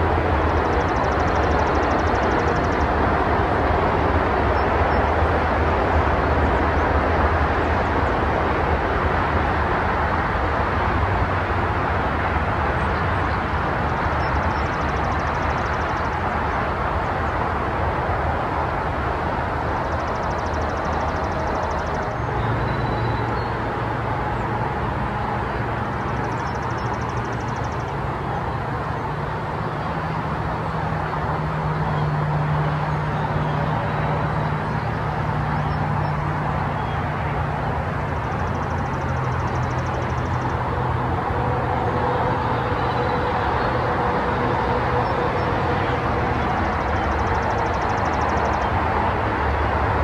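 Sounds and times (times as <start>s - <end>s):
vehicle engine humming: 0.0s - 50.0s.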